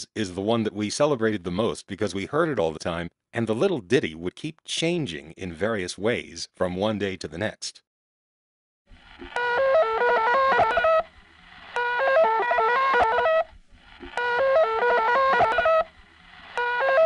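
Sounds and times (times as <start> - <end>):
faint hum and hiss: 8.9 - 16.9
stepped electronic tone melody: 9.2 - 17.0.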